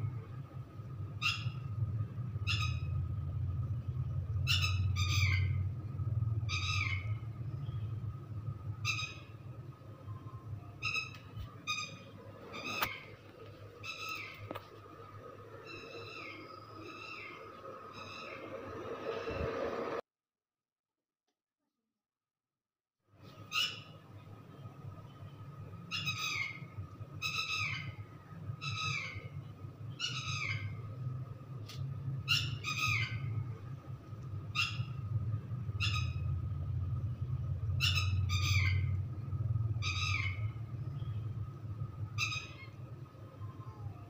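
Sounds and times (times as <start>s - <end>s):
steady low hum: 0.0s - 20.0s, 23.2s - 44.0s
bird squawks: 4.4s - 5.6s, 10.8s - 13.2s, 28.6s - 29.4s, 30.0s - 30.8s, 32.3s - 33.3s, 35.8s - 36.3s, 37.8s - 39.0s, 39.8s - 41.1s, 42.2s - 42.8s.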